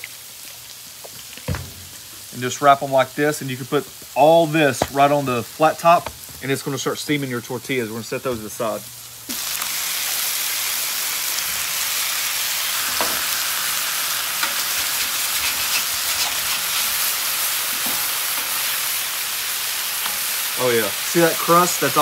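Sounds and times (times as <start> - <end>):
steaks sizzling on griddle: 0.0 - 22.0.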